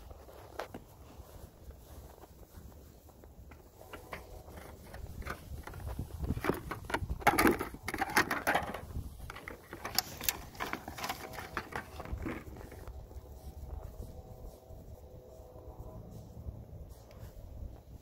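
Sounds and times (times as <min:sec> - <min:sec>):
plastic plant pots clattering: 0:03.5 - 0:12.9.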